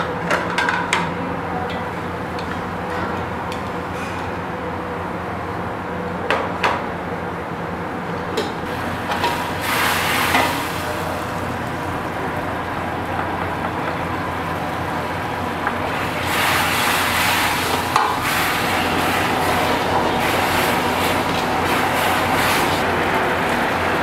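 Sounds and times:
sauce sizzling in a wok: 8.7 - 11.7, 15.8 - 24.0.

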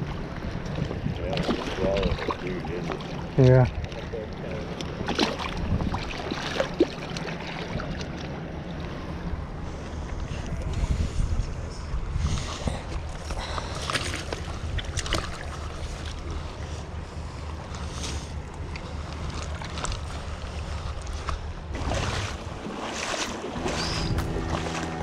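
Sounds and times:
wind rumbling on microphone: 0.0 - 2.6, 4.9 - 6.4, 8.9 - 25.0
creek water over rocks: 0.0 - 9.1, 17.5 - 25.0
splashes and knocks in water: 0.6 - 4.1, 4.7 - 8.4, 13.0 - 16.4, 18.0 - 24.8.

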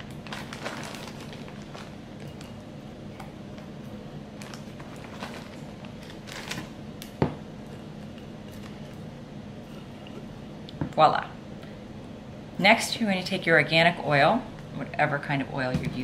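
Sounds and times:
plastic bag rustling: 0.0 - 6.8
steady low hum: 0.0 - 16.0.

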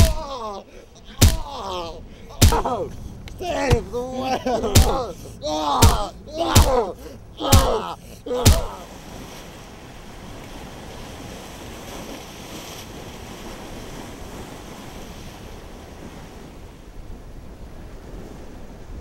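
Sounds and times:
person yelling: 0.0 - 8.9
waves breaking on rocks: 0.0 - 19.0.

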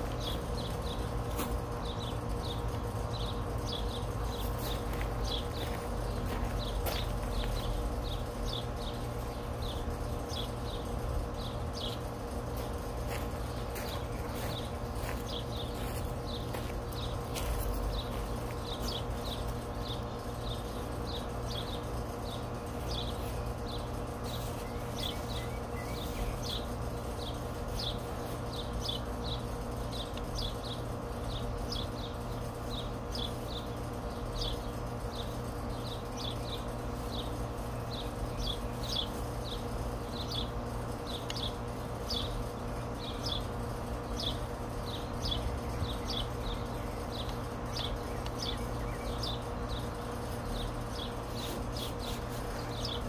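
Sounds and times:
low background hum: 0.0 - 53.0
bird chirping: 13.5 - 53.0.

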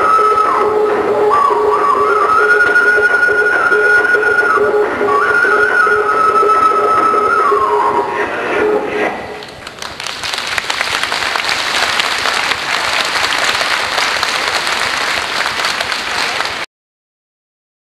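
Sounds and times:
music: 0.0 - 9.5
audience applauding: 9.4 - 16.7.

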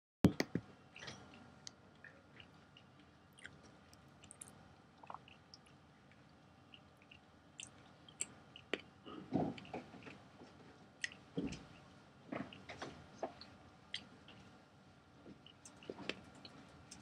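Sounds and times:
biscuit chewing: 15.2 - 17.0.

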